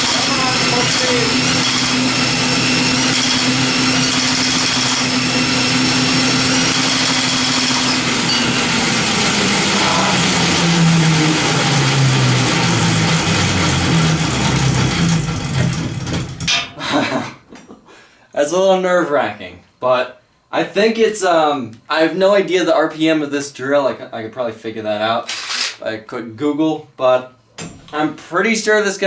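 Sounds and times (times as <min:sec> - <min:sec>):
cordless drill whining: 0:00.0 - 0:16.1.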